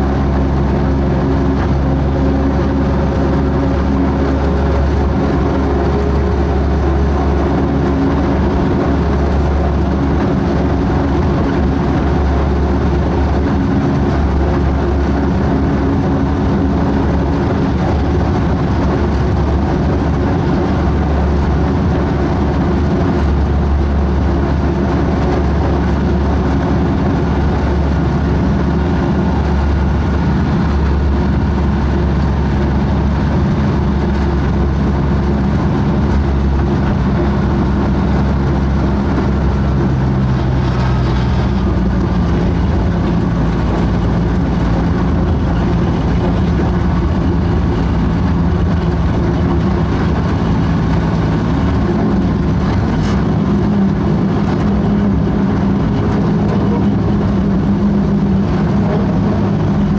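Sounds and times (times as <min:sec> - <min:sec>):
diesel locomotive engine running: 0:00.0 - 0:59.9.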